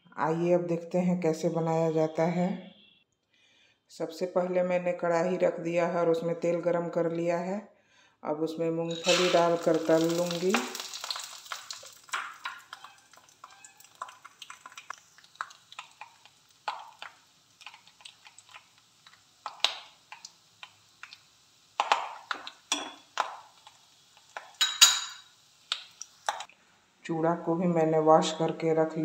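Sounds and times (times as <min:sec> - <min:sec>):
oil sizzling: 0:08.8 - 0:26.6
metal spatula scraping pan: 0:08.9 - 0:09.7.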